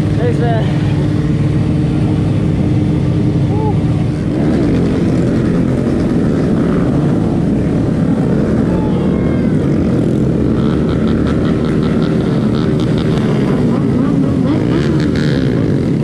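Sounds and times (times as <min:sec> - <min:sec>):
motorcycle engine under throttle: 0:00.0 - 0:09.0, 0:09.6 - 0:16.0.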